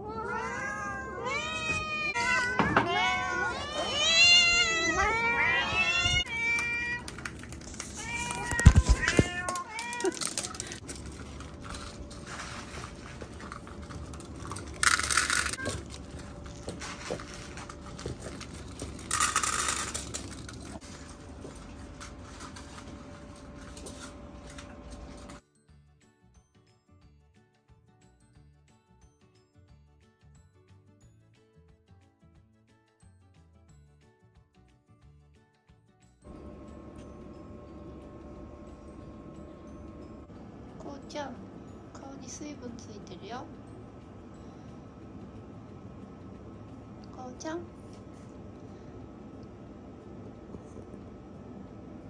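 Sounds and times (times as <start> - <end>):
cats meowing: 0.0 - 7.2, 7.8 - 10.8.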